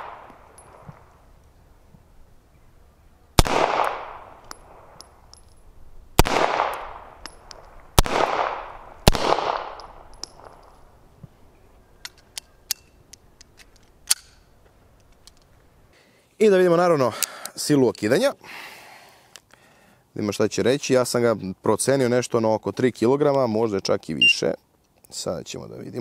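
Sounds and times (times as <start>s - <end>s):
pistol shots with echo: 3.4s - 5.0s, 6.2s - 7.4s, 8.0s - 10.6s
metallic clicks of pistol: 3.8s - 5.7s, 6.6s - 7.9s, 9.5s - 10.9s, 12.0s - 15.5s.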